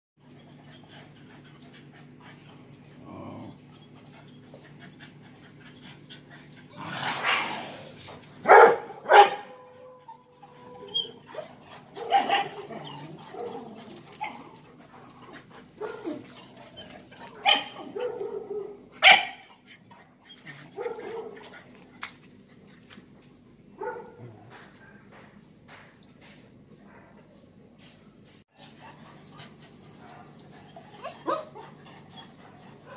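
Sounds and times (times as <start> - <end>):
dogs barking: 8.4 - 9.9, 11.1 - 14.6, 15.7 - 16.3, 17.0 - 19.7, 20.6 - 21.5, 23.8 - 24.4, 30.0 - 32.9
dogs whining: 9.9 - 18.0.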